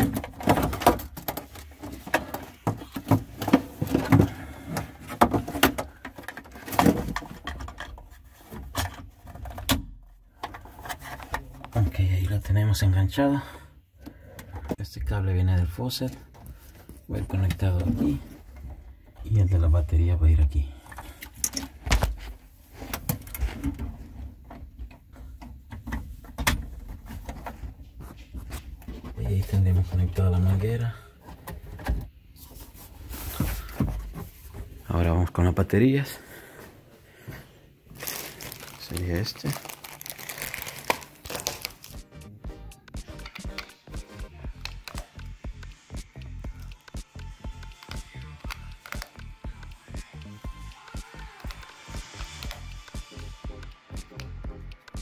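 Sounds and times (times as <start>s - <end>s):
plastic parts clicking and knocking: 0.0s - 11.8s, 42.9s - 55.0s.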